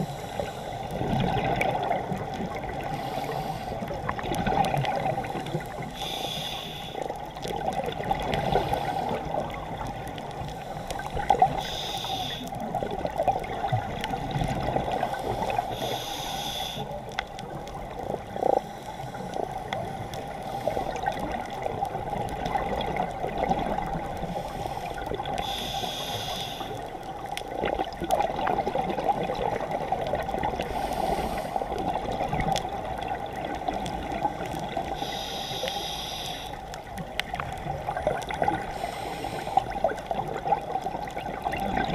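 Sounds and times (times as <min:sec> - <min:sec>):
exhaled air bubbling underwater: 0:00.0 - 0:41.9
scuba regulator hiss: 0:02.9 - 0:03.8, 0:05.8 - 0:07.1, 0:08.4 - 0:09.3, 0:11.5 - 0:12.5, 0:15.0 - 0:17.0, 0:24.3 - 0:26.8, 0:30.7 - 0:31.6, 0:34.9 - 0:36.6, 0:38.7 - 0:39.7.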